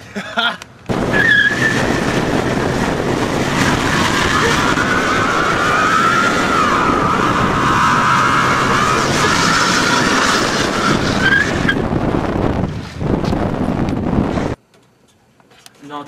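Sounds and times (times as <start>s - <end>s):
engine running: 0.8s - 14.6s
tyres squealing: 1.1s - 11.8s.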